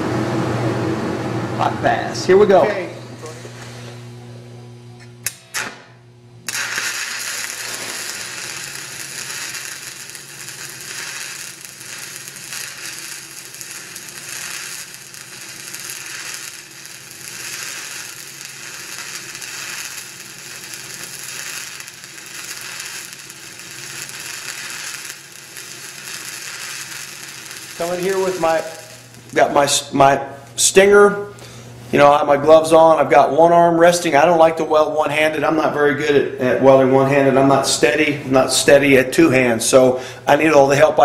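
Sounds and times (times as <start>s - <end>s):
welding arc crackling and sizzling: 5.0s - 31.3s.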